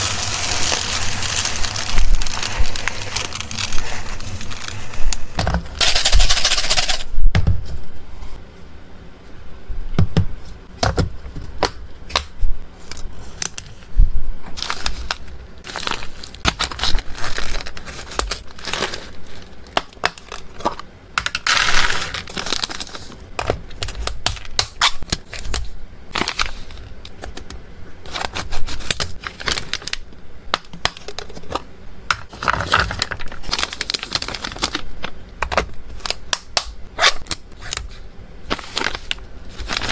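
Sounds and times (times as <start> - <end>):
plastic packets crinkling: 0.0 - 7.0, 14.6 - 27.3, 28.1 - 30.1, 32.2 - 35.2, 35.9 - 39.9.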